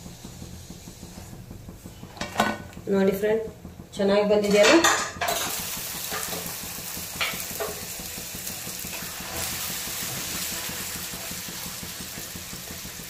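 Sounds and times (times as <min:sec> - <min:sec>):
food sizzling in hot oil: 0:04.8 - 0:13.0.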